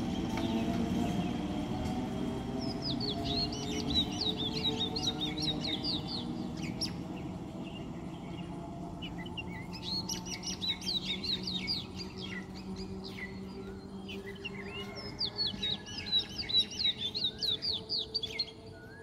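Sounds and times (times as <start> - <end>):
electric train hum: 0.0 - 19.0
small birds chirping: 0.0 - 19.0.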